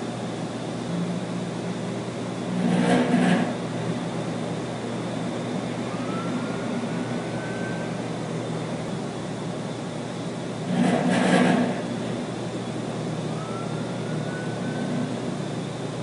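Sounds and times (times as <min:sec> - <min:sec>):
refrigeration units running: 0:00.0 - 0:16.0
faint rising whistle: 0:05.8 - 0:08.0, 0:13.2 - 0:15.2.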